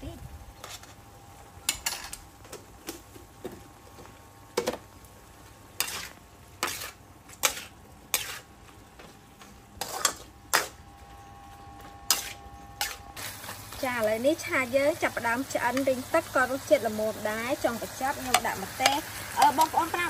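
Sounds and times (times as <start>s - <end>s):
spatula scraping metal wok: 5.8s - 8.6s, 9.8s - 10.8s, 12.1s - 13.5s
sauce sizzling: 12.1s - 20.0s.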